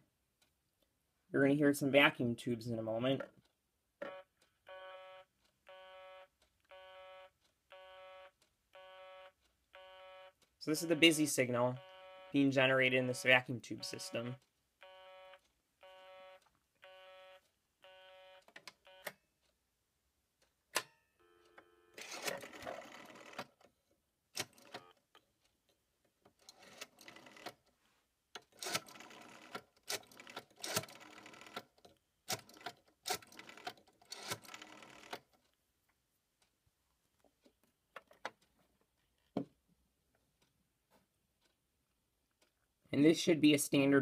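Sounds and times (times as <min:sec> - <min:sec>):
rotary dial whirring and clicking: 0:21.3 - 0:23.6, 0:26.4 - 0:27.6, 0:28.4 - 0:35.6.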